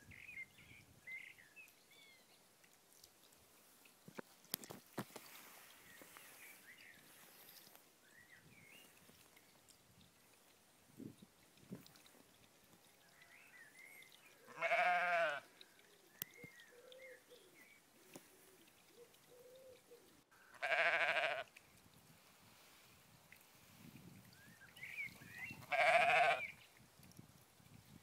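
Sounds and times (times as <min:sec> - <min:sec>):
sheep bleating: 0:14.5 - 0:15.5, 0:20.6 - 0:21.5, 0:25.7 - 0:26.5.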